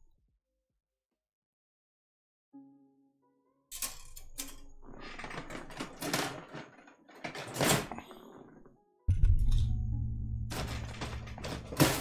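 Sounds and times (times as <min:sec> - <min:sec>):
plastic pieces clattering: 0:04.2 - 0:08.6, 0:10.5 - 0:12.0.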